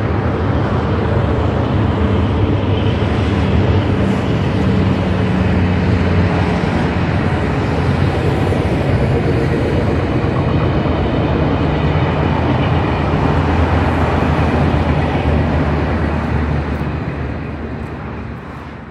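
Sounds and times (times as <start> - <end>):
passenger train running on rails: 0.0 - 18.9.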